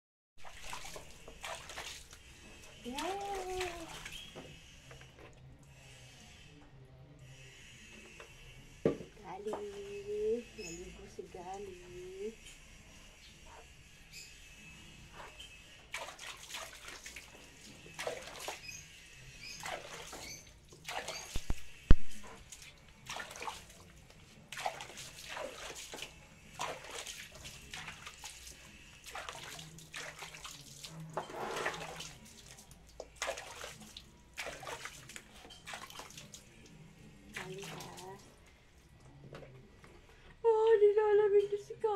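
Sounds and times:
soapy dog coat being scrubbed: 0.4s - 4.4s, 15.1s - 21.6s, 22.2s - 38.3s
water splashing: 0.4s - 4.4s, 15.9s - 38.4s.

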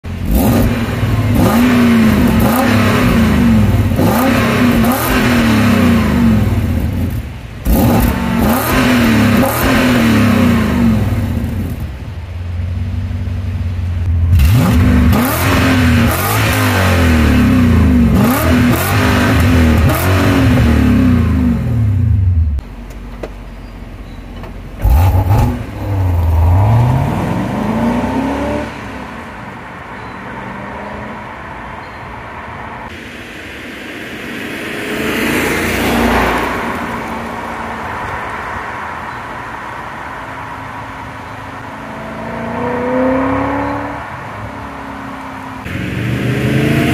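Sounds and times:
car engine revving: 0.1s - 11.9s, 12.7s - 22.6s, 24.8s - 29.7s, 34.0s - 46.9s
car driving away: 0.2s - 22.7s, 24.5s - 46.9s
car engine idling: 11.1s - 15.3s.

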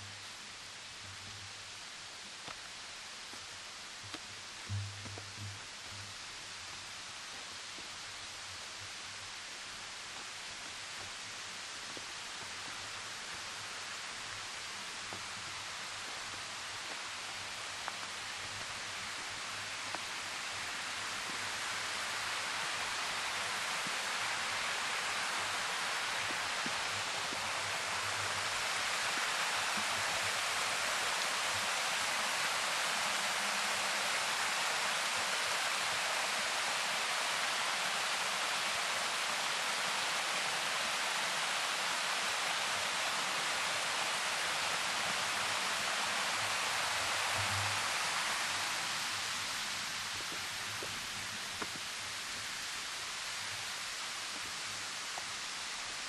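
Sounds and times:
waterfall rushing: 11.4s - 56.0s.

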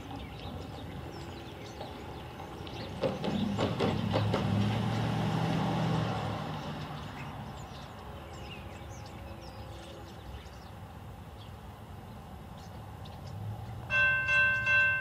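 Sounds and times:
high bird chirps: 14.3s - 15.0s.

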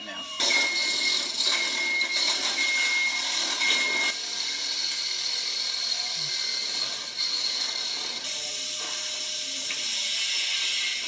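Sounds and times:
power tool whining on sheet metal: 0.0s - 11.0s
work-site noise: 0.0s - 11.0s.

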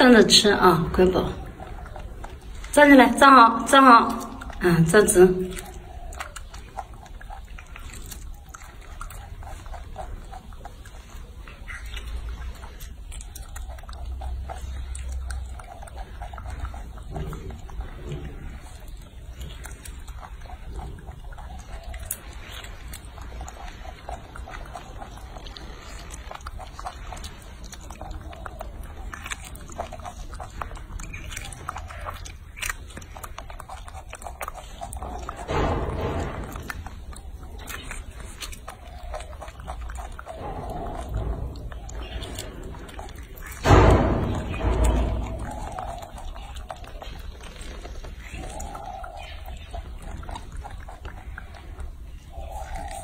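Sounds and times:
monkey chewing and smacking wetly: 0.0s - 53.0s
monkey low vocal sound: 0.0s - 53.0s
steady low rumble: 34.8s - 52.7s.

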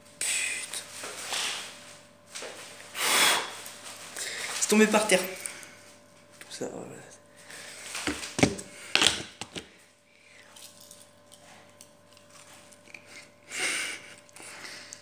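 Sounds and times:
handling noise on phone: 8.0s - 9.7s.

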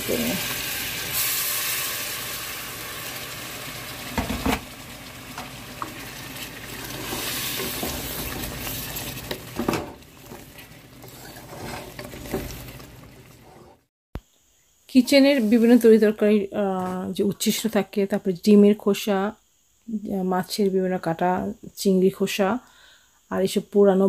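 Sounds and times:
eggs sizzling in a pan: 0.0s - 13.9s.

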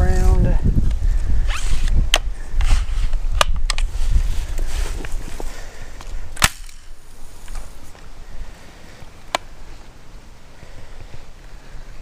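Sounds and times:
wind buffeting microphone: 0.0s - 7.0s.

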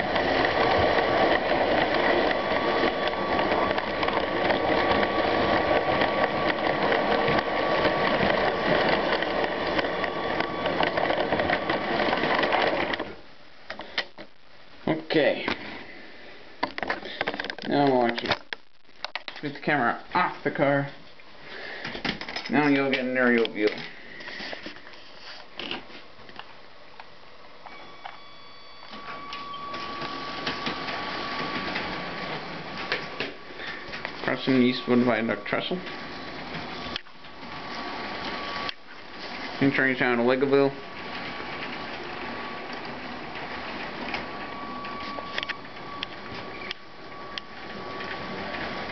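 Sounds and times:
toy train motor gears whirring: 0.0s - 12.5s
plastic wheels clattering over rails: 0.0s - 14.3s, 29.0s - 48.9s
faint steady whine: 0.0s - 48.9s.

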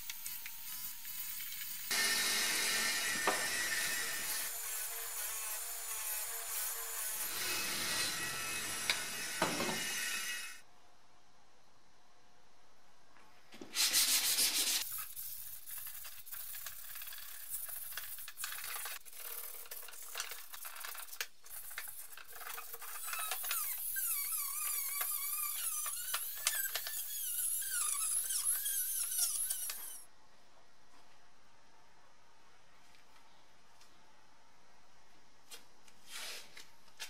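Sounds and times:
warbling squeak: 22.6s - 30.0s.

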